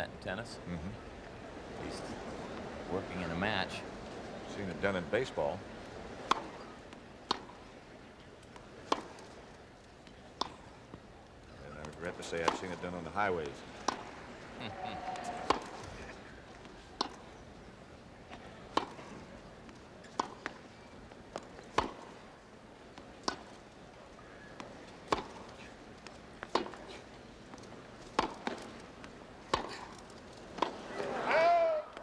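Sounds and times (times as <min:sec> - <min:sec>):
faint crowd hum: 0:00.0 - 0:32.0
tennis ball being struck: 0:06.2 - 0:06.6, 0:07.3 - 0:07.6, 0:08.8 - 0:09.2, 0:10.4 - 0:10.7, 0:12.4 - 0:12.8, 0:13.8 - 0:14.1, 0:18.7 - 0:19.0, 0:20.1 - 0:20.6, 0:21.3 - 0:22.2, 0:23.2 - 0:23.5, 0:24.6 - 0:25.5, 0:26.4 - 0:26.9, 0:28.1 - 0:28.7, 0:29.5 - 0:29.9.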